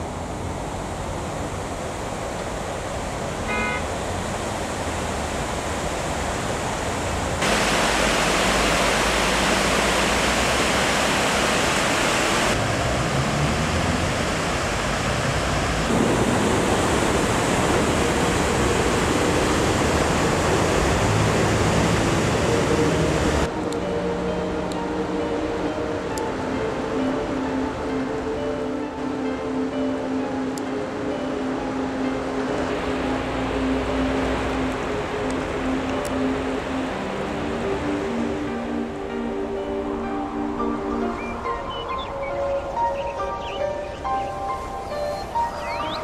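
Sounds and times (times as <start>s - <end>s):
river water rushing over weir: 0.0s - 46.0s.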